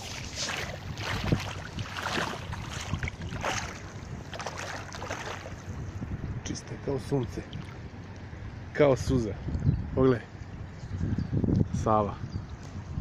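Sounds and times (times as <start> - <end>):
feet wading through shallow water: 0.0 - 6.0.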